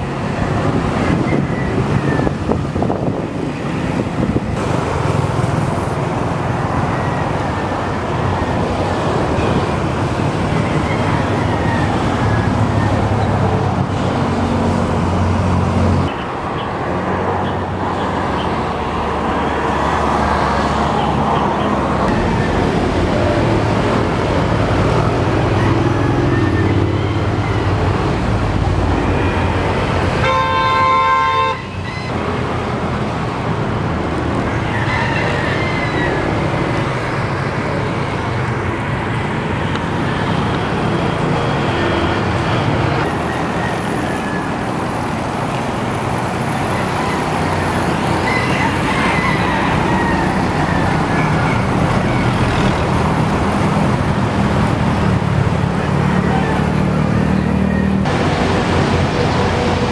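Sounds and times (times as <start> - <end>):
city street traffic: 0.0 - 59.9
car horn blast: 30.2 - 31.7.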